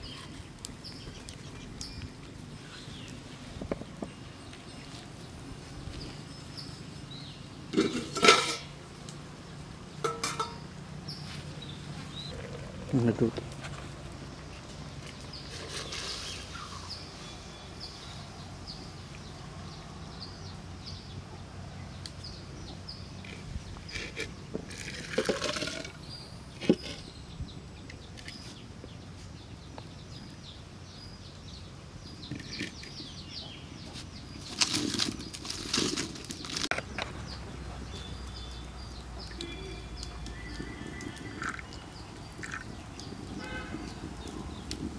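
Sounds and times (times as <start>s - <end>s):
pot knock: 10.0s - 10.6s.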